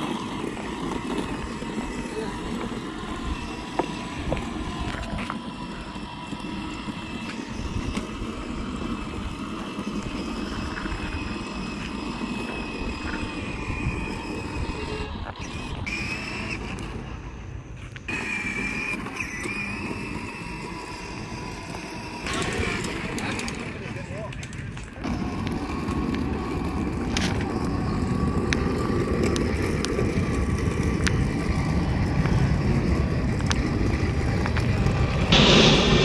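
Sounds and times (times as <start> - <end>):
road rumble with tyre and wind noise: 0.0 - 36.0.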